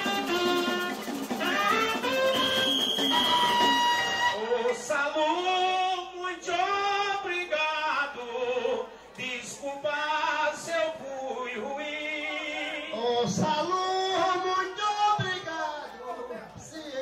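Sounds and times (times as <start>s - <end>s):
voices singing a melody: 4.2s - 17.0s.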